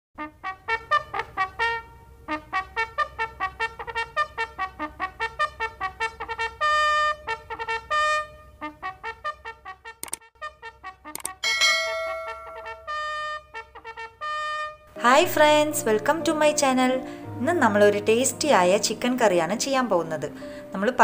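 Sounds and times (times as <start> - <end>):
trumpet fanfare: 0.2 - 15.8
sharp click: 10.0 - 10.2, 11.2 - 11.4.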